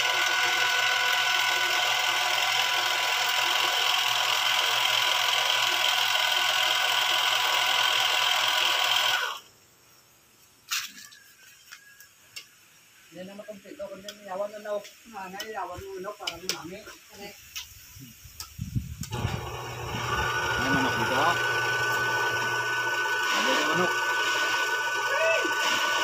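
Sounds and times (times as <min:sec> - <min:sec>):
lathe motor whine: 0:00.0 - 0:09.4, 0:19.1 - 0:26.0.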